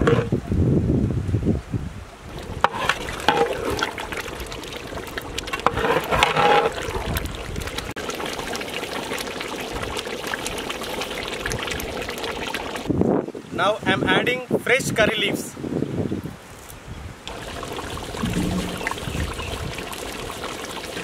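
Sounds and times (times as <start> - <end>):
metal ladle stirring and sloshing: 0.0 - 0.3, 2.3 - 8.0, 17.3 - 19.7
curry bubbling and popping: 2.3 - 12.9, 17.2 - 21.0.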